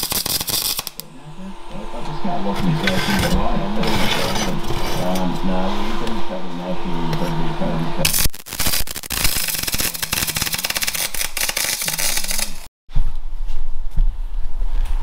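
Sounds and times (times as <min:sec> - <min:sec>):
welder arc crackling: 0:00.0 - 0:01.2, 0:08.0 - 0:12.7.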